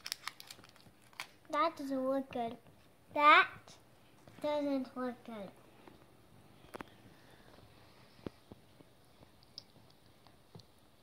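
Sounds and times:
candy wrapper clicks: 0.0 - 1.4.

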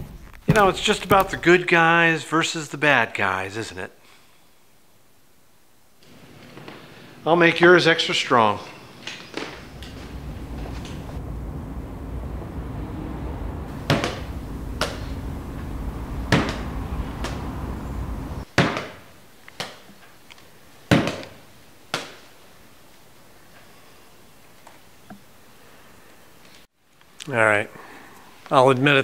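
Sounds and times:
low steady rumble: 9.6 - 18.5.

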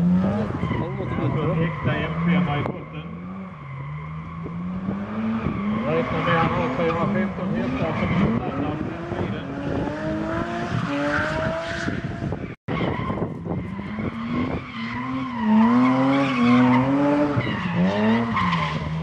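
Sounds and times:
car engine revving hard: 0.0 - 12.4, 13.8 - 19.0.

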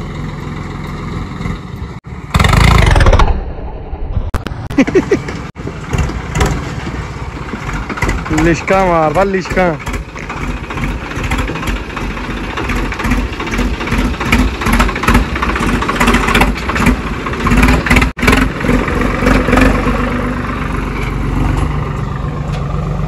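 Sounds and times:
tractor diesel engine running: 0.0 - 23.0
clatter and rattling: 5.0 - 19.8.

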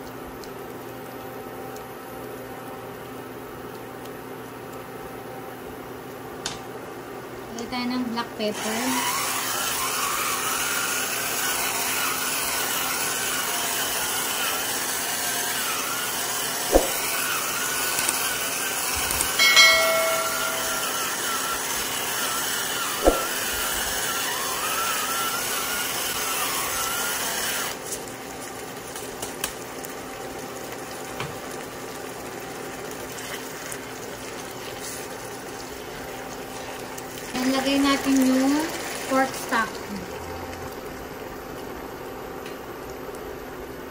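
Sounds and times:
pepper grinder grinding: 8.6 - 27.6
pan simmering: 9.1 - 27.2, 27.8 - 43.9.

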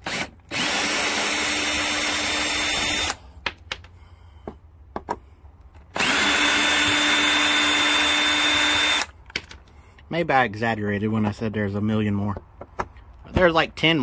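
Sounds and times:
cordless drill motor whining: 0.0 - 3.2, 5.9 - 9.1.

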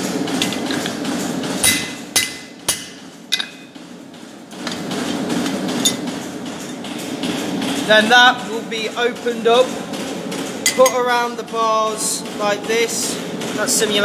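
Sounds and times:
low hum of workshop machinery: 0.0 - 14.0
hammer striking steel on anvil: 1.6 - 3.7.

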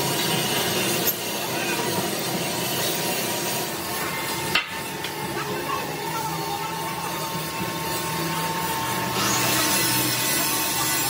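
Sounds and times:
workshop machinery noise: 0.0 - 11.0.

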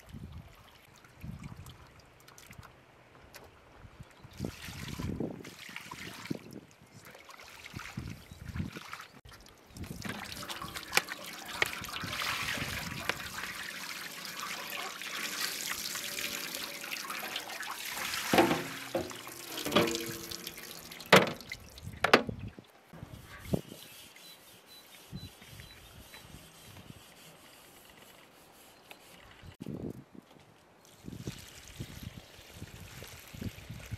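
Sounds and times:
water pouring and splashing: 4.3 - 22.7, 30.8 - 33.9
metal pans clanking: 18.2 - 22.2.

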